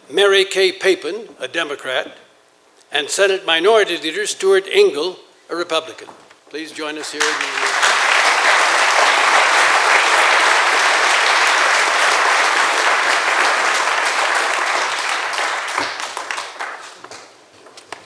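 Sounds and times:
audience applauding: 0:06.8 - 0:17.3.

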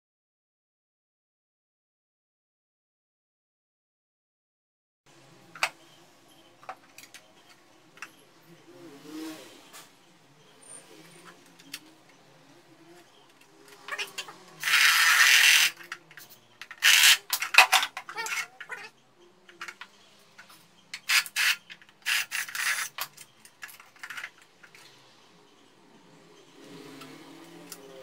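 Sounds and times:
wood scraping and rubbing: 0:12.9 - 0:18.9, 0:21.0 - 0:25.0.

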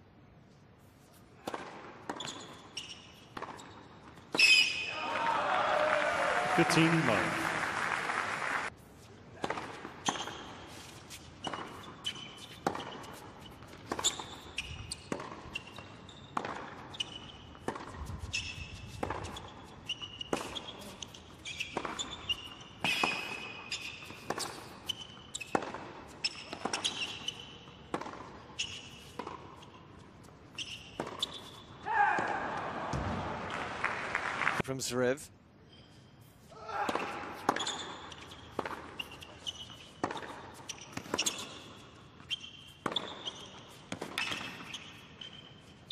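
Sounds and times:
sneakers squeaking on court: 0:01.4 - 0:04.9, 0:09.4 - 0:31.8, 0:37.0 - 0:45.9
tennis ball struck by rackets: 0:15.1 - 0:16.9, 0:17.6 - 0:18.2, 0:18.9 - 0:19.4, 0:27.9 - 0:28.4, 0:40.0 - 0:41.5, 0:42.7 - 0:44.7.

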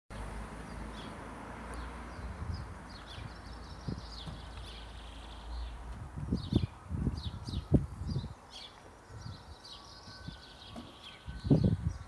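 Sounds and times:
small birds chirping: 0:00.2 - 0:12.0
soft thump: 0:04.2 - 0:04.5.

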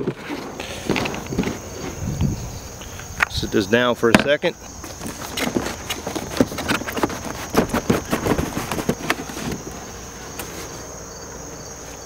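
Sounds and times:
cardboard box scraping and rustling: 0:00.0 - 0:02.6, 0:04.7 - 0:10.9
high-pitched insect chirr: 0:00.5 - 0:12.0.

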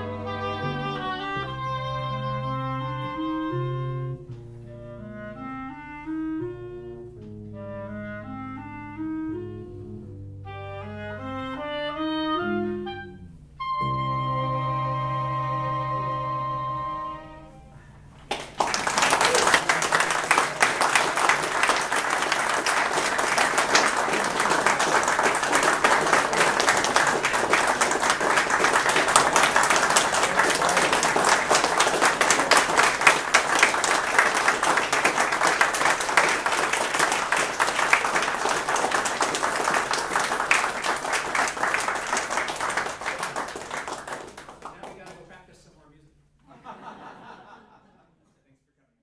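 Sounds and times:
audience applauding: 0:18.3 - 0:45.3.

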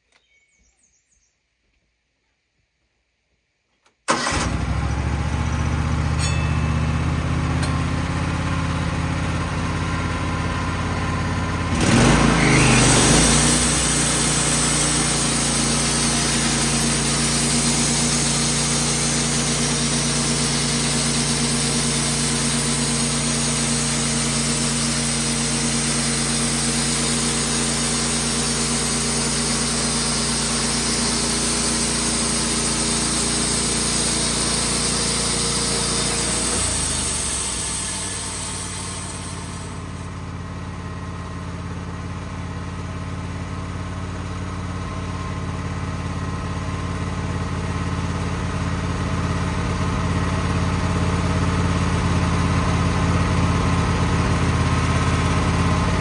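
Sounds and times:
gas engine running: 0:04.1 - 0:56.0
band saw blade cutting log: 0:11.8 - 0:40.2.

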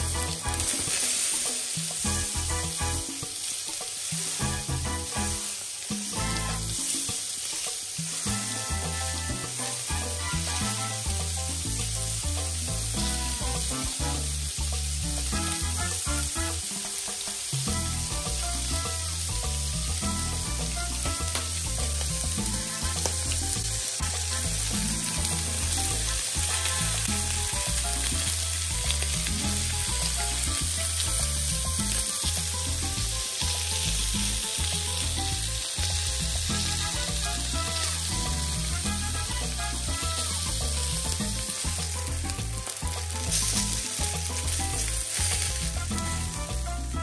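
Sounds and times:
fish sizzling in a pan: 0:00.0 - 0:47.0
soft background music: 0:00.0 - 0:47.0.

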